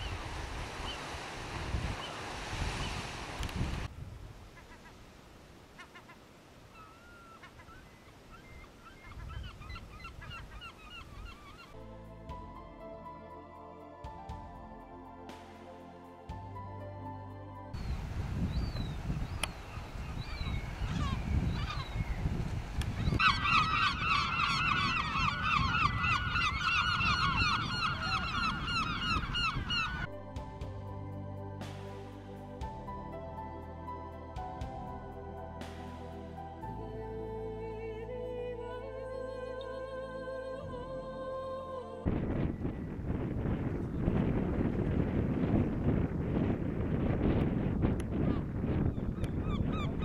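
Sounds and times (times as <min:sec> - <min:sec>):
wind rumble on microphone: 0:00.0 - 0:04.6, 0:17.7 - 0:30.1, 0:42.0 - 0:50.0
gulls calling: 0:22.9 - 0:30.1.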